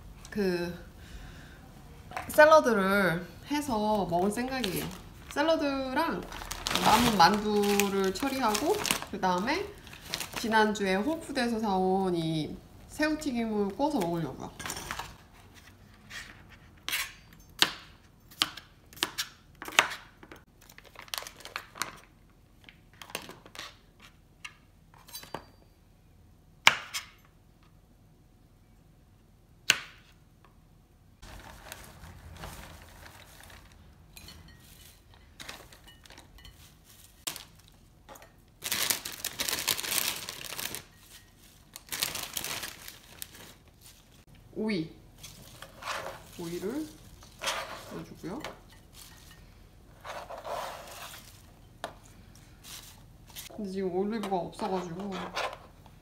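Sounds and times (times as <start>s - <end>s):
salad leaves rustling: 3.6s - 11.4s, 31.2s - 37.9s, 38.6s - 44.3s, 45.1s - 53.5s
plastic package crinkling: 4.0s - 11.2s, 31.2s - 34.0s, 35.4s - 37.9s, 38.6s - 44.2s.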